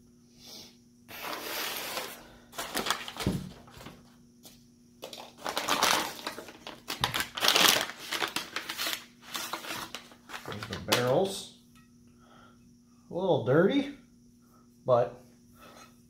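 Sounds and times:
packing paper rustling: 1.2s - 4.0s, 5.0s - 11.4s.

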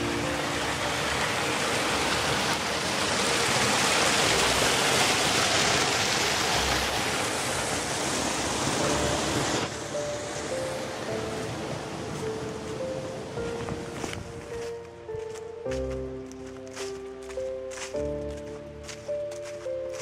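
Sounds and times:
stream rushing over stones: 0.0s - 14.8s.

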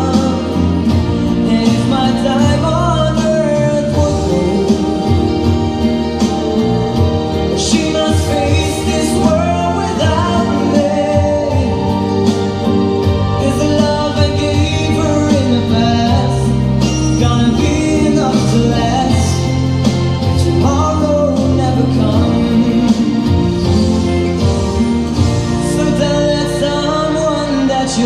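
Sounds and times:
live band playing pop ballad: 0.0s - 28.0s.

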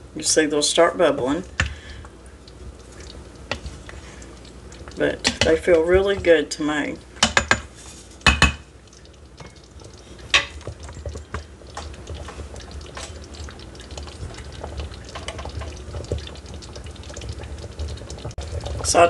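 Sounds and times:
broth simmering and bubbling: 0.0s - 19.0s
wooden spoon knocking on steel pot: 7.2s - 8.6s, 10.3s - 12.2s.

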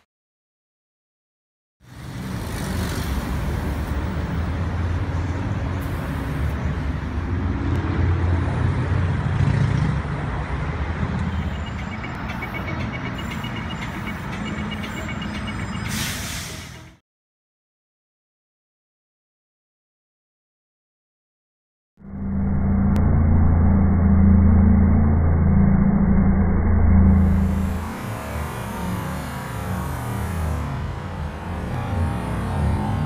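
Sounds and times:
trucks and cars passing: 1.8s - 17.0s, 22.0s - 33.0s.

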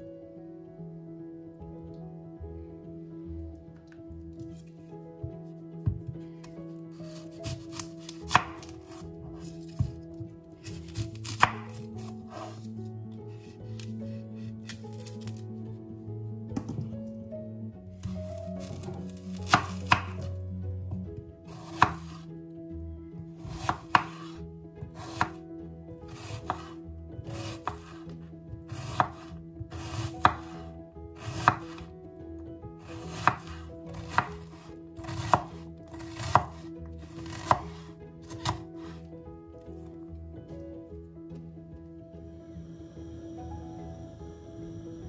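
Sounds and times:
knife chopping on wooden board: 7.1s - 12.6s, 18.0s - 20.3s, 21.5s - 22.2s, 23.4s - 24.4s, 25.0s - 25.4s, 26.1s - 26.7s, 27.3s - 28.0s, 28.7s - 30.6s, 31.2s - 31.9s, 32.9s - 39.0s.

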